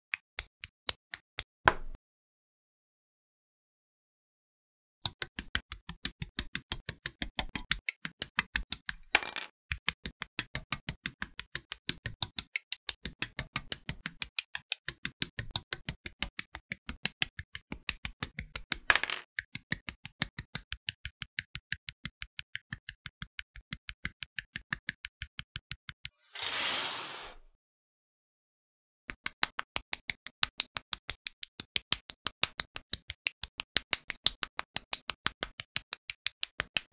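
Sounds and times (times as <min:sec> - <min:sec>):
burst of hiss: 0:26.3 - 0:27.4.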